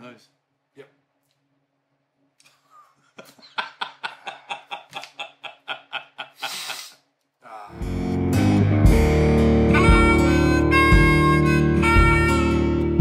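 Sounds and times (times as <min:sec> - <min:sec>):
man laughing heartily: 0:02.6 - 0:07.0
breathy intake: 0:06.3 - 0:07.8.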